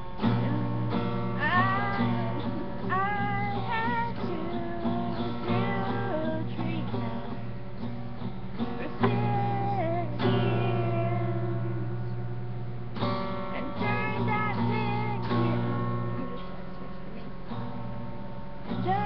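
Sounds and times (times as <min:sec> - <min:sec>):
strummed acoustic guitar: 0:00.0 - 0:19.0
women singing together: 0:00.3 - 0:07.4, 0:08.7 - 0:12.0.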